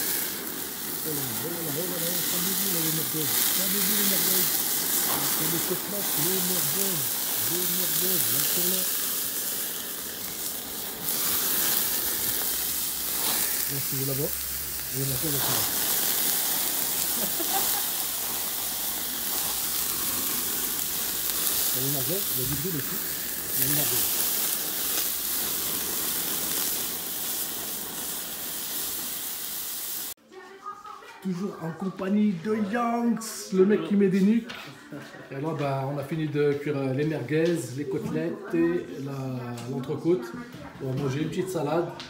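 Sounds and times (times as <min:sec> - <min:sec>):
sausages sizzling on a grill: 0:00.0 - 0:30.2, 0:40.8 - 0:42.0.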